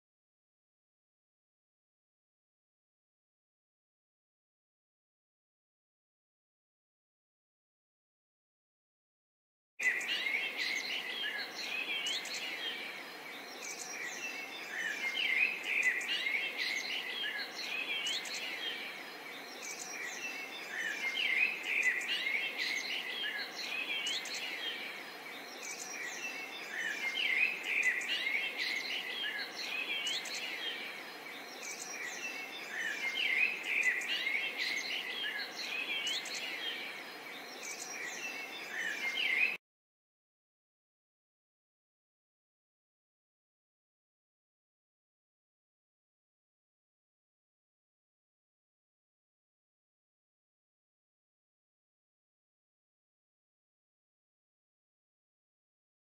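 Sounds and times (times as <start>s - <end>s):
birds chirping and twittering: 9.8s - 39.6s.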